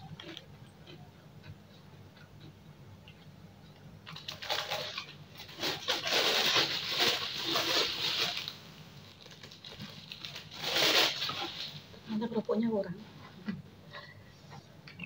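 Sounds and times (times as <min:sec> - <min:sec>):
plastic bag crinkling: 0:04.0 - 0:12.4.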